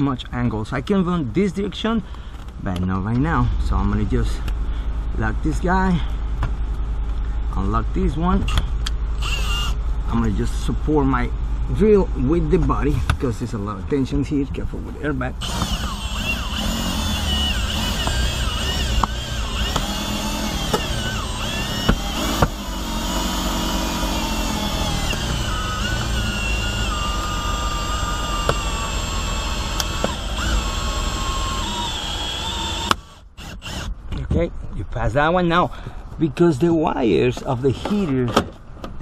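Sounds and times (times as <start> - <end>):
cordless drill motor whining: 9.2 - 9.8, 15.4 - 33.9.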